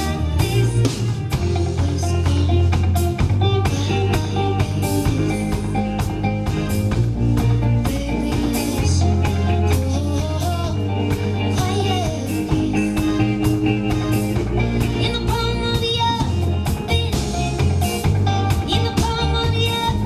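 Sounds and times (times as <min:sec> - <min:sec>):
woman singing: 0:00.0 - 0:05.9, 0:07.4 - 0:17.8, 0:18.4 - 0:20.0
bass guitar: 0:00.0 - 0:20.0
electric guitar: 0:00.0 - 0:20.0
steady drum beat: 0:00.0 - 0:20.0.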